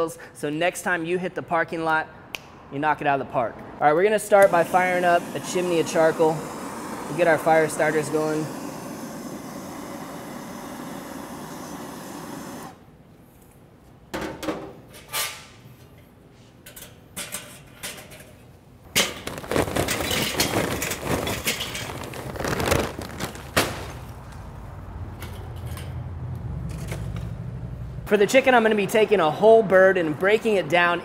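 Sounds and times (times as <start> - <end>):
butane torch hissing: 4.2 - 12.8
charcoal clattering into metal: 18.9 - 24.0.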